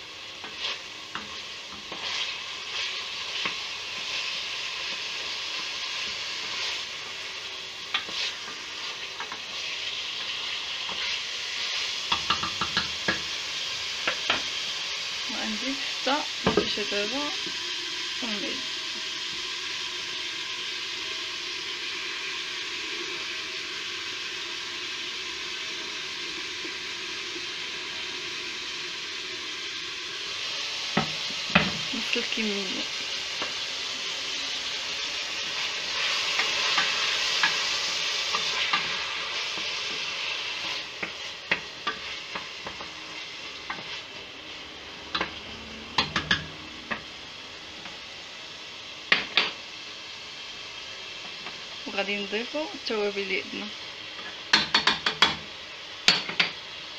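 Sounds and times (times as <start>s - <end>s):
food sizzling in oil: 0.0s - 56.9s
spoon knocking against pot: 12.1s - 13.2s, 46.0s - 47.0s, 54.5s - 55.4s.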